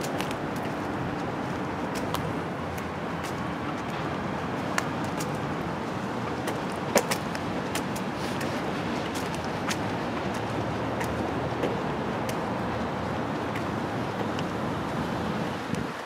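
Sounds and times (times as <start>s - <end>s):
light clicks and taps: 0.0s - 4.0s, 4.6s - 5.4s, 6.4s - 12.5s
road traffic hum: 0.0s - 16.0s.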